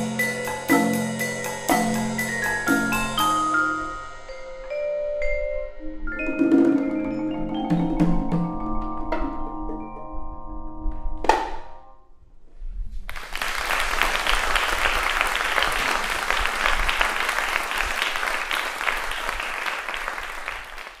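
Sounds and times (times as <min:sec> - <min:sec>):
marimba and vibraphone: 0:00.0 - 0:11.2
audience applause: 0:13.1 - 0:21.0.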